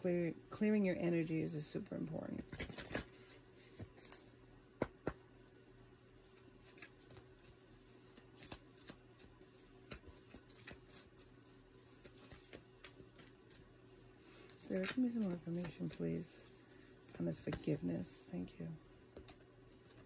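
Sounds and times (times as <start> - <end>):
faint hum: 0.0 - 20.0
cards being shuffled: 2.4 - 5.2, 6.2 - 18.3, 19.2 - 20.0.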